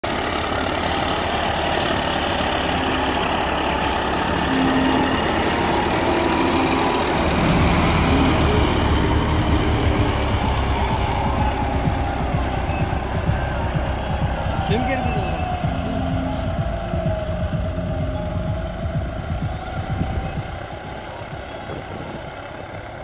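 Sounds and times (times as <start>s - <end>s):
tractor diesel engine rumbling: 0.0s - 23.0s.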